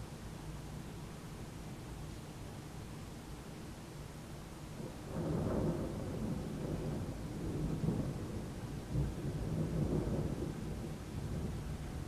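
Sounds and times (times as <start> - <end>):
rain hissing: 0.0 - 12.0
thunder rumbling: 4.9 - 12.0.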